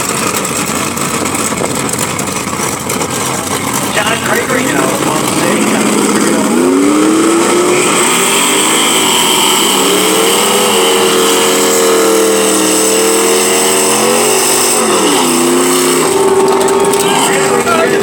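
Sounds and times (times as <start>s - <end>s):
tyres spinning: 0.0s - 8.0s, 13.0s - 18.0s
car engine revving hard: 0.0s - 18.0s.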